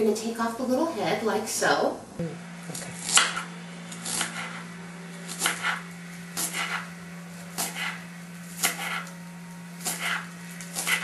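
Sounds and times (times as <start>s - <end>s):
low hum: 0.0s - 11.0s
knife slicing on wooden board: 2.9s - 4.7s, 5.3s - 6.9s, 7.6s - 9.1s, 9.8s - 11.0s.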